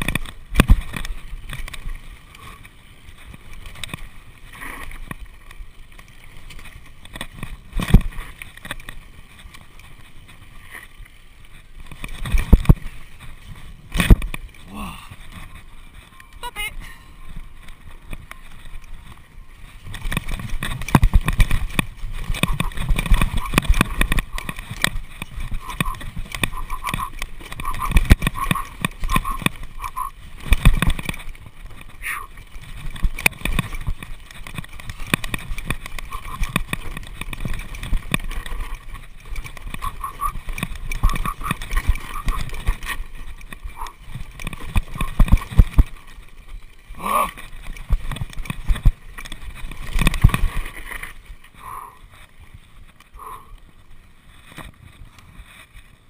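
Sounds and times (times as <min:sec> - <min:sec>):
mountain bike rattling and knocking: 0:00.0 - 0:53.2.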